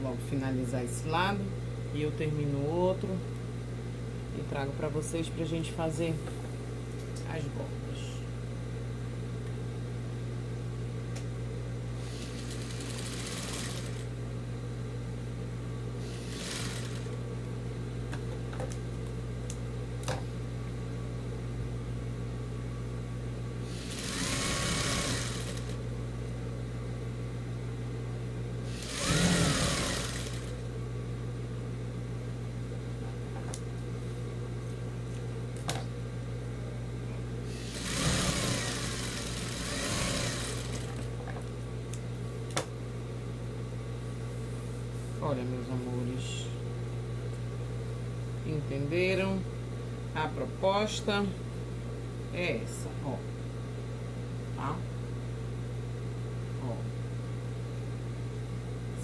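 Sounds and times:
sewing machine running: 0:12.0 - 0:14.1, 0:16.0 - 0:17.2, 0:23.7 - 0:25.8, 0:28.7 - 0:30.7, 0:37.5 - 0:41.1.

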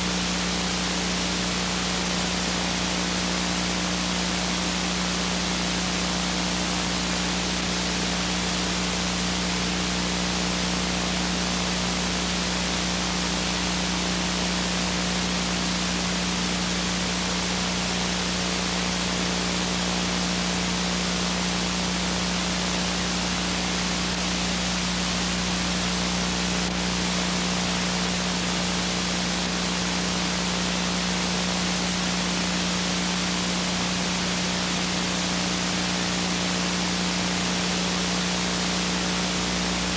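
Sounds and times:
videotape hiss: 0:00.0 - 0:39.9.

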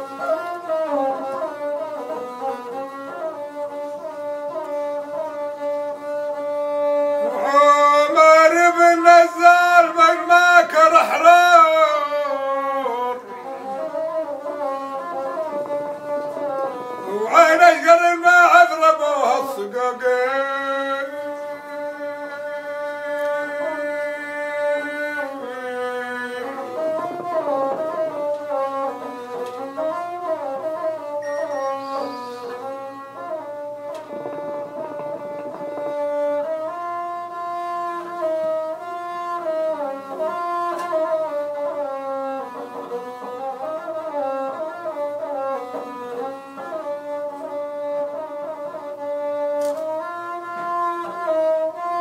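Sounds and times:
bowed fiddle long note: 0:00.0 - 0:52.0
person singing wavering line: 0:07.2 - 0:13.7, 0:17.0 - 0:29.3.

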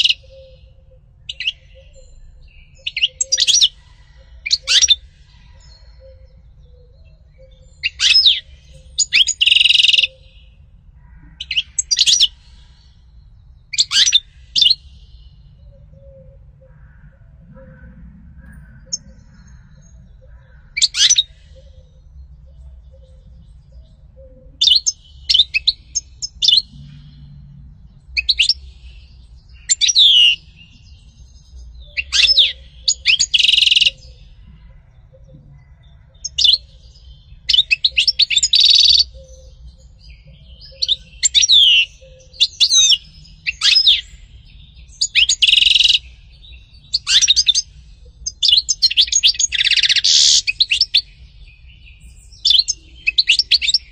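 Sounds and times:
goldfinch twittering song: 0:07.2 - 0:10.6, 0:24.6 - 0:27.4, 0:28.0 - 0:34.2, 0:36.2 - 0:53.9.

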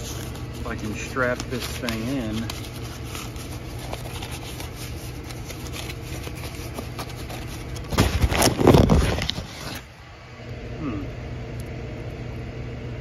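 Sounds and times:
parts rummaged by hand: 0:00.0 - 0:10.0
steady low hum: 0:00.0 - 0:13.0.

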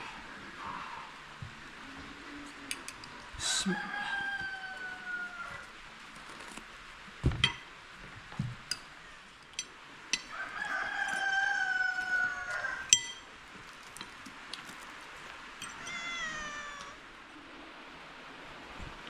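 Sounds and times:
rooster crowing: 0:03.4 - 0:05.8, 0:10.2 - 0:13.0.

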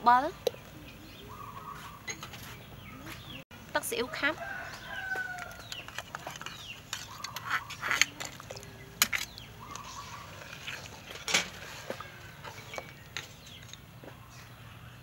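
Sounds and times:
metal spoon scraping cooking pot: 0:05.0 - 0:13.8.

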